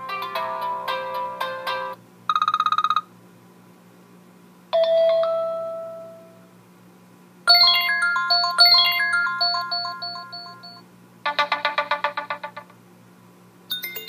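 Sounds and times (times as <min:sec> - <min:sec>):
bell-like ringtone notes: 0:07.5 - 0:10.8, 0:13.7 - 0:14.0
phone ringtone chime: 0:07.5 - 0:10.8, 0:13.7 - 0:14.0.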